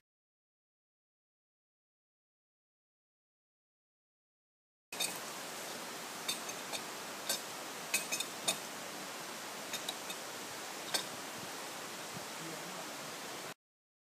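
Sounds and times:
steady hiss: 0:05.0 - 0:13.6.

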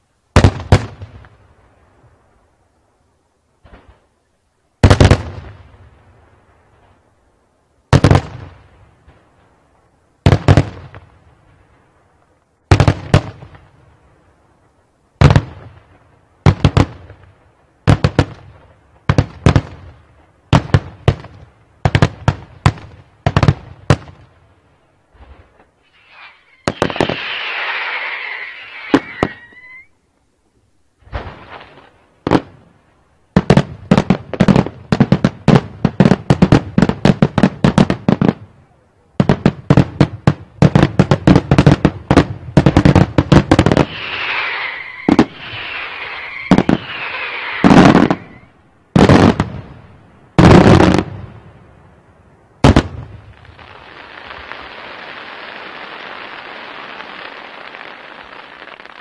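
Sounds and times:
fireworks hissing and whistling: 0:25.1 - 0:30.0, 0:42.8 - 0:49.4, 0:53.3 - 0:59.0.

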